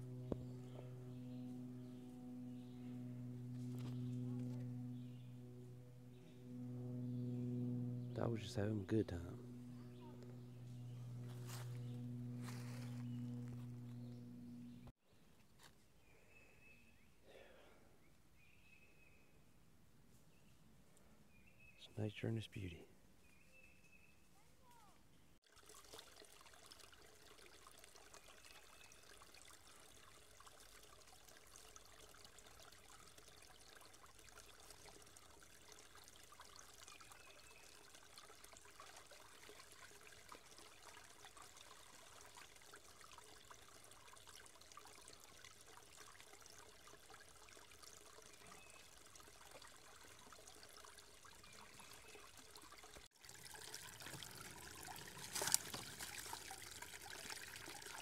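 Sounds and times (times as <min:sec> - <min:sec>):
creek trickling over rocks: 0:25.4 - 0:58.0.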